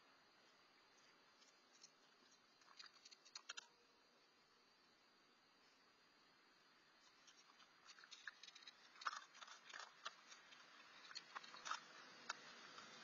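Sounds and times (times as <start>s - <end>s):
raccoon crunching food: 1.4s - 3.7s, 7.1s - 13.0s.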